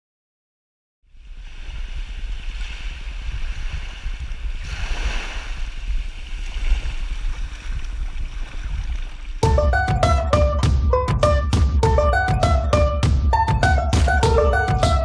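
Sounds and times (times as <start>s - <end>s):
sea water washing over sand: 1.1s - 9.4s
wind buffeting microphone: 1.2s - 9.4s.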